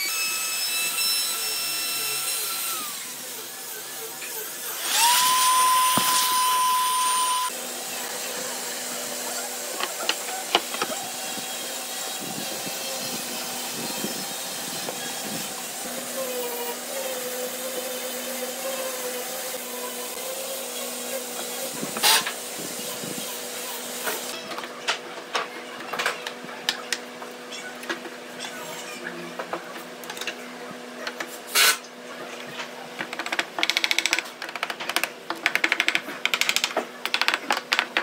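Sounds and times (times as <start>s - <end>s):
electric router whining: 0.0s - 22.2s.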